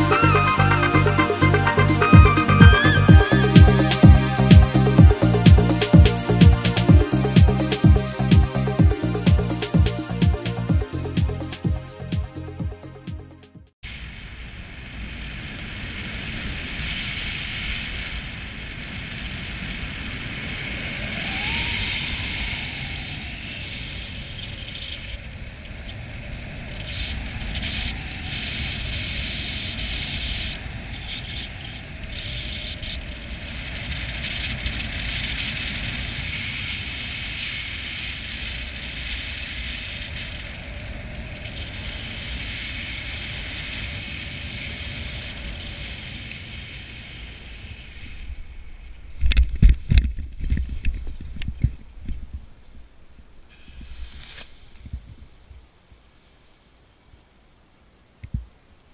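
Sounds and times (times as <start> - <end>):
wind rushing over microphone: 13.8 - 55.8
paramotor engine and propeller: 17.8 - 48.3.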